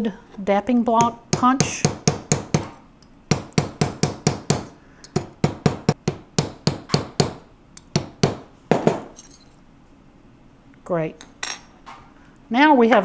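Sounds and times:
mallet tapping metal punch: 3.3s - 9.0s.

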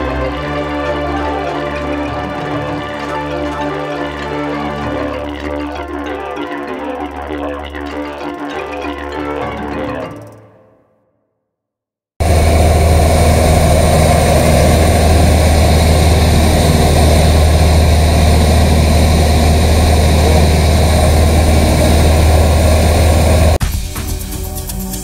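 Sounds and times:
light aircraft engine droning in cabin: 12.2s - 23.6s.

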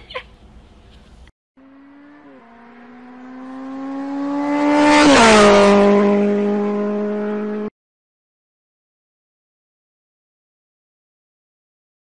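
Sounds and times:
vehicle engine passing by: 1.6s - 7.7s.

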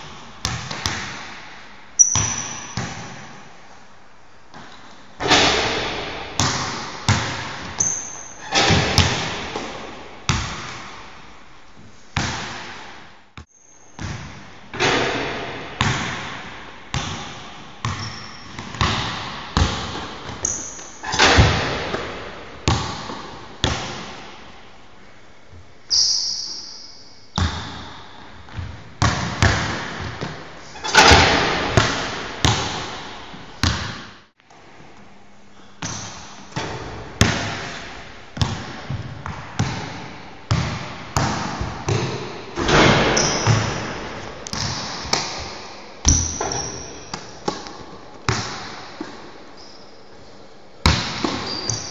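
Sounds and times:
basketball bouncing on wooden floor: 0.0s - 1.4s, 2.0s - 3.4s, 4.5s - 11.1s, 14.0s - 24.3s, 27.4s - 34.1s, 35.8s - 49.3s, 50.8s - 51.9s
shoes squeaking on floor: 2.0s - 2.8s, 7.8s - 8.8s, 13.4s - 14.0s, 17.9s - 18.8s, 20.4s - 21.2s, 25.9s - 27.2s, 42.6s - 44.4s, 46.0s - 47.5s, 49.5s - 50.0s, 51.2s - 51.9s.

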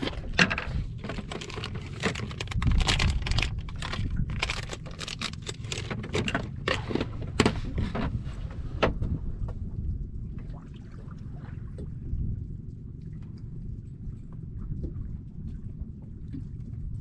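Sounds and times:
fishing tackle clicking and rattling: 0.0s - 7.2s
low rumble: 0.0s - 17.0s.

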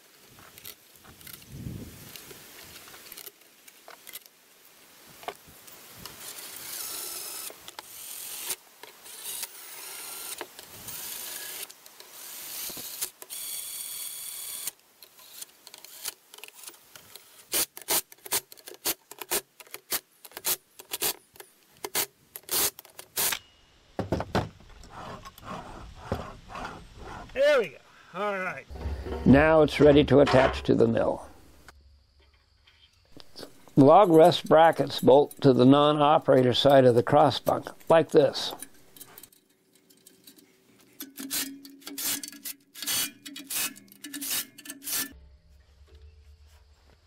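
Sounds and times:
drill motor whirring: 6.3s - 16.1s, 42.8s - 45.1s
metal parts clattering: 38.4s - 45.2s.

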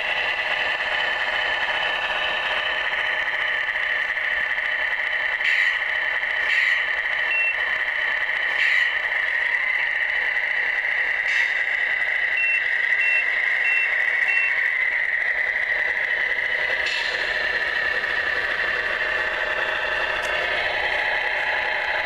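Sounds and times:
tinny engine drone from speaker: 0.0s - 22.0s
reversing beeper: 7.3s - 7.6s, 12.3s - 14.7s.

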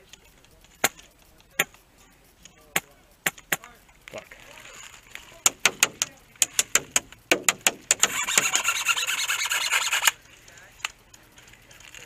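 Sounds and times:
airsoft gunfire: 5.4s - 8.6s.

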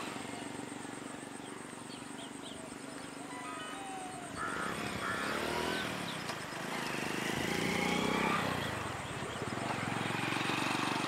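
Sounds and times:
faint bird chirps: 0.0s - 6.7s.

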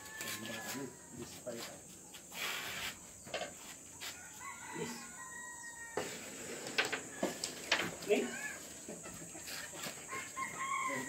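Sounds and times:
rooster crowing: 0.0s - 1.4s, 4.0s - 11.0s
chickens clucking: 6.8s - 10.7s.

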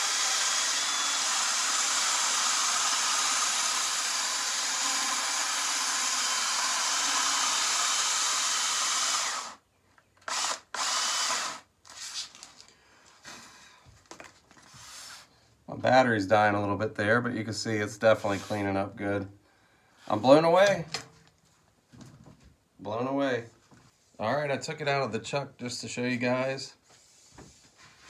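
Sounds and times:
drill whirring: 0.0s - 9.6s, 10.2s - 12.0s.

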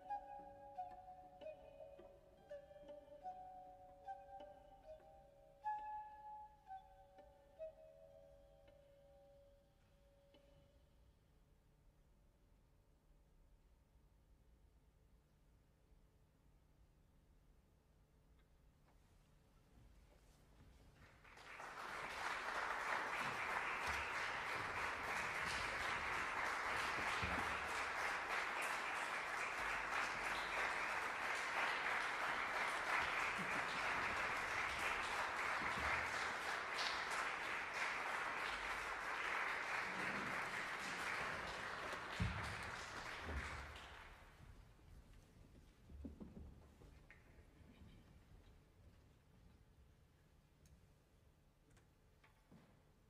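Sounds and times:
audience applauding: 21.0s - 44.4s.

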